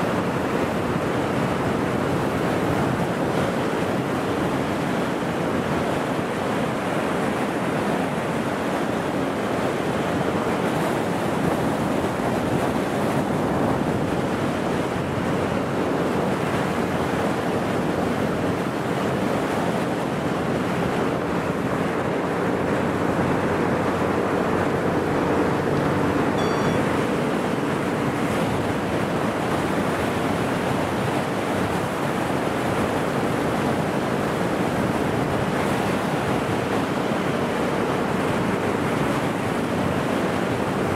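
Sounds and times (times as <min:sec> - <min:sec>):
water rushing: 0:00.0 - 0:40.9
wind buffeting microphone: 0:00.0 - 0:40.9
faint engine drone: 0:20.8 - 0:29.4.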